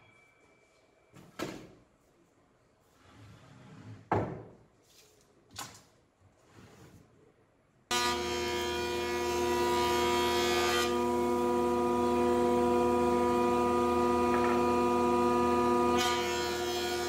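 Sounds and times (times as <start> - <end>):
faint scraping and rustling: 2.8 - 4.1.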